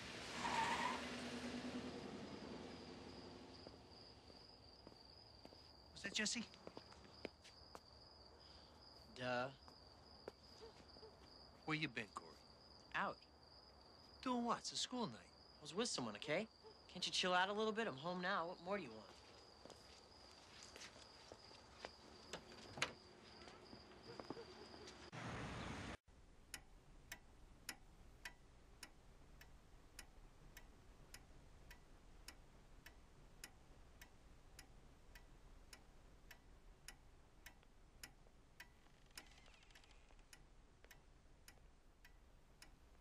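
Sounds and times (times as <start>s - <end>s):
clock ticking: 26.4s - 39.3s, 40.2s - 43.0s.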